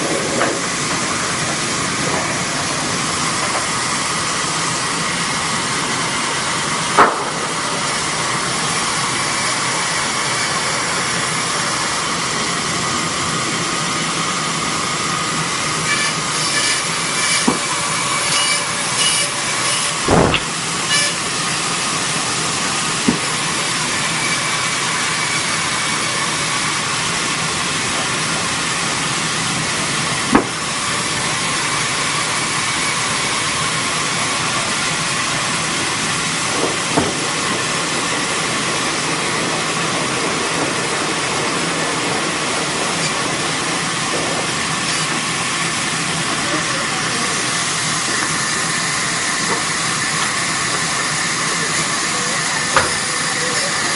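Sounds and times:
machinery running with loud hiss: 0.0 - 53.9
knocks: 20.1 - 20.5.

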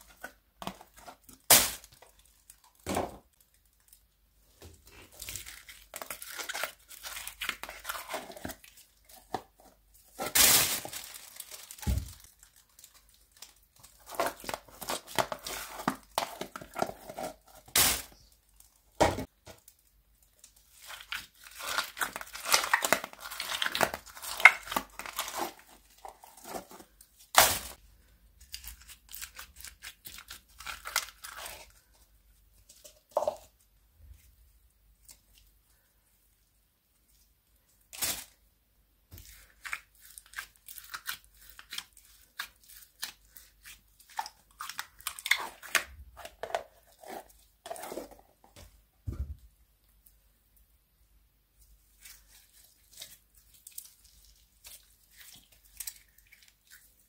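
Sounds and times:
plastic bag rustling: 10.0 - 18.2.

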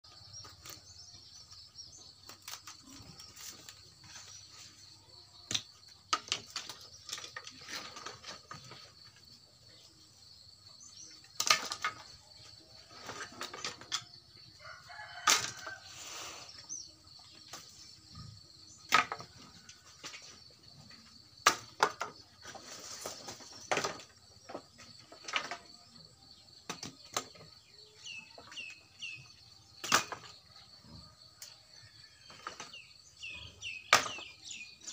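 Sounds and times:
branches cracking and chopping: 2.2 - 3.8
twigs and leaves rustling: 2.2 - 4.9, 21.8 - 25.9.

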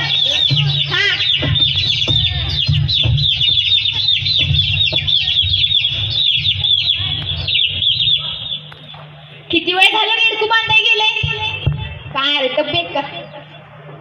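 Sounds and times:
hens clucking: 0.0 - 9.2
small birds chirping: 0.0 - 9.5
steady low hum: 0.0 - 14.0.

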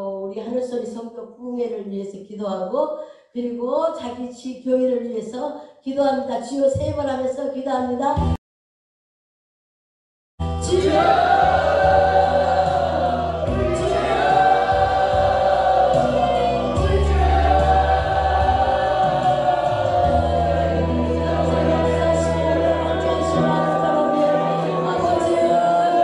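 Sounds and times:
keyboard music: 10.4 - 26.0
crowd praying aloud: 10.6 - 26.0.

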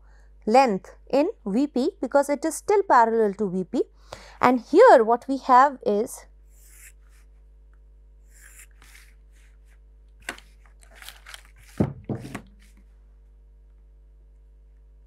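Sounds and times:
pencil strokes on paper: 6.5 - 7.4, 8.3 - 9.8.

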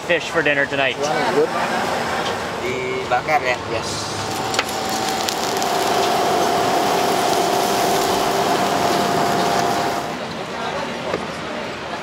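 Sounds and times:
steady hum: 1.7 - 10.2
fish sizzling on charcoal grill: 3.8 - 10.2
sharp pops: 4.2 - 10.2.

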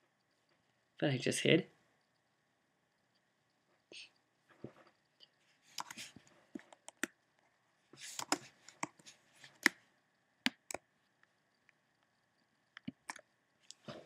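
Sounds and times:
mouse and keyboard clicks: 5.7 - 7.2, 8.0 - 9.8.

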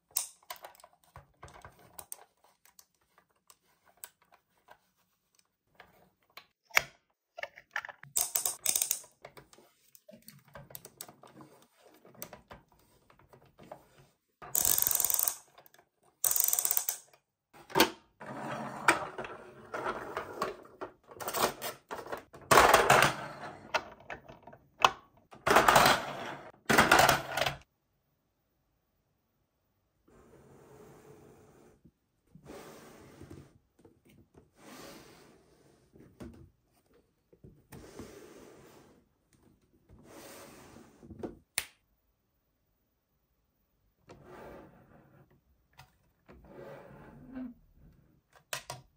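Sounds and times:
toys clicking and tapping: 6.7 - 9.3, 14.4 - 17.3.

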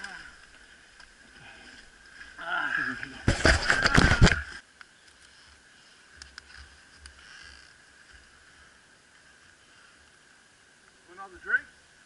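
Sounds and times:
leaves and branches crashing: 3.0 - 4.5.

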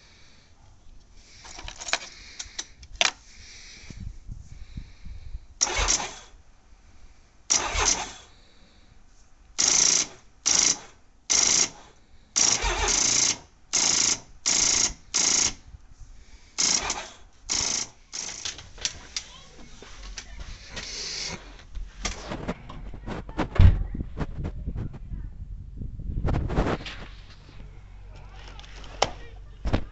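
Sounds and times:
motorcycle starter cranking: 5.6 - 6.4, 7.5 - 8.3, 9.6 - 11.8, 12.4 - 15.6, 16.6 - 18.6.

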